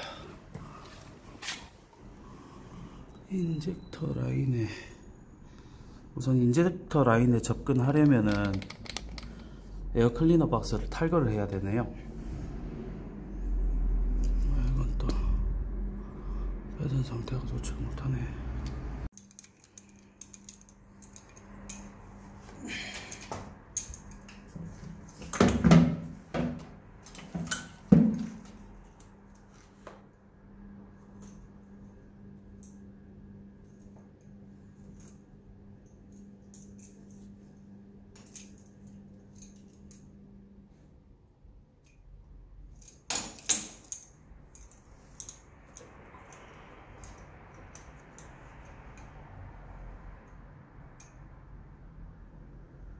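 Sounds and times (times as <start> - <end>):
plastic connectors clicking: 7.8 - 9.4
faint steady hum: 27.0 - 52.9.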